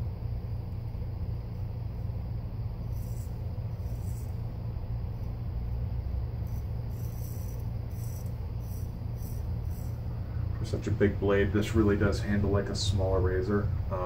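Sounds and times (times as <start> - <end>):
steady low hum: 0.0 - 14.0
straight razor scraping stubble: 2.8 - 4.6, 6.5 - 10.0.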